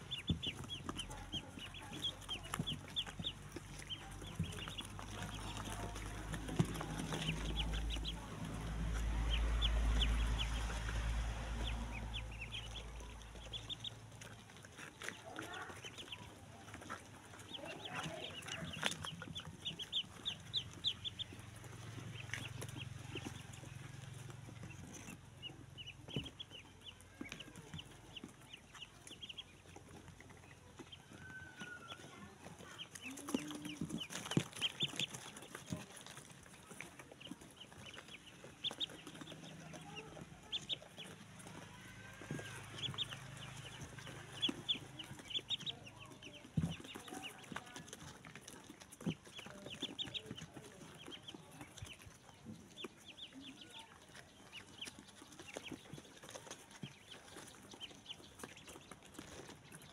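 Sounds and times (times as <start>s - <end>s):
low rumble: 0.0s - 14.5s
ducklings peeping: 0.0s - 59.9s.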